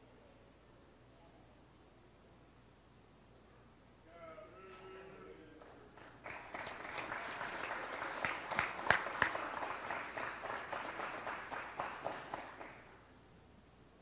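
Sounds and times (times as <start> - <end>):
audience applauding: 5.6 - 13.0
sharp close claps: 5.6 - 13.0.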